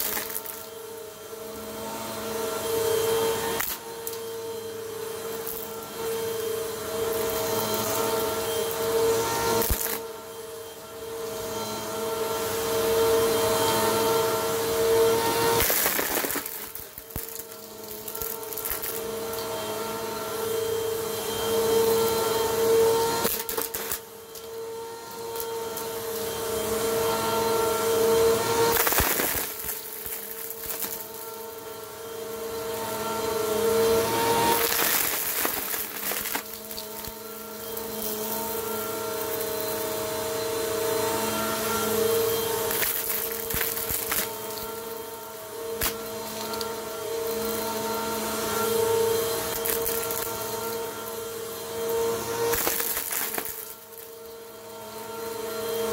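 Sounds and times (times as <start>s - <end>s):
vacuum cleaner running: 0.0s - 55.9s
vacuum crunching debris: 28.7s - 31.1s, 34.4s - 37.2s, 42.6s - 44.7s.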